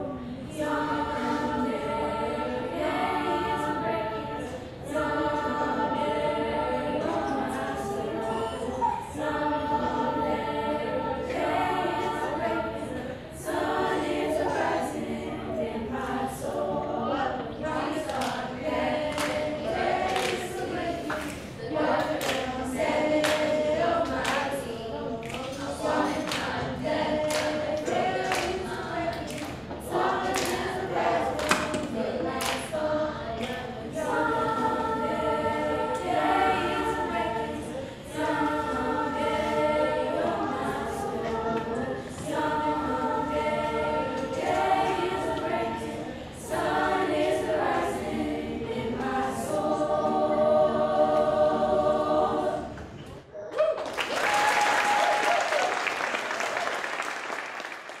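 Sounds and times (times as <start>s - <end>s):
choir singing a cappella: 0.0s - 53.5s
hand claps keeping time: 19.0s - 21.4s, 23.1s - 24.6s, 25.2s - 29.6s, 30.2s - 32.7s
audience applause: 53.6s - 58.0s.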